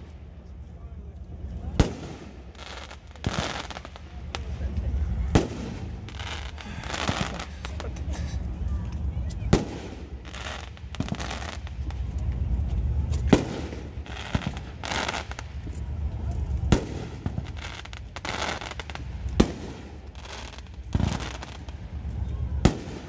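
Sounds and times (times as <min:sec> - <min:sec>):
firecracker bangs: 0:01.8 - 0:02.4, 0:22.6 - 0:23.0.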